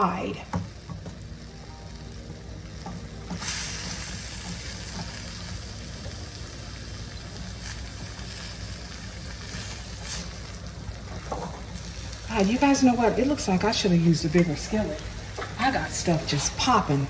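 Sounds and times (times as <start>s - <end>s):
low steady hum: 0.0s - 17.0s
vegetables sizzling in a pan: 0.0s - 17.0s.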